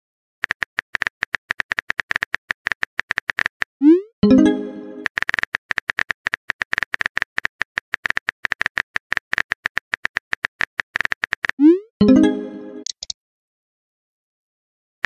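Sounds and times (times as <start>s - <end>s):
phone keyboard typing taps: 12.8s - 13.1s.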